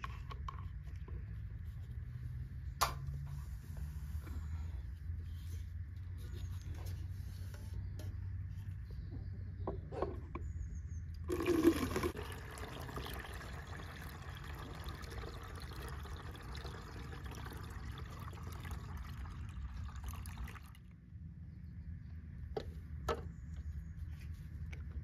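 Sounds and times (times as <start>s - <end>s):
liquid pouring: 11.2s - 20.8s.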